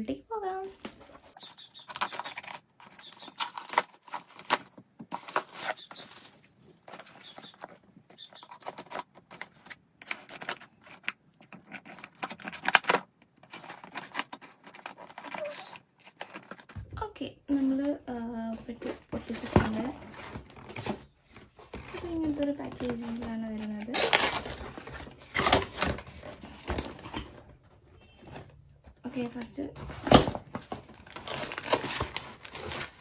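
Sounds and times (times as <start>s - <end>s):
cardboard box rustling: 0.8s - 16.9s, 29.8s - 33.0s
scissors cutting packing tape: 1.8s - 6.0s, 10.0s - 16.6s, 23.8s - 24.6s.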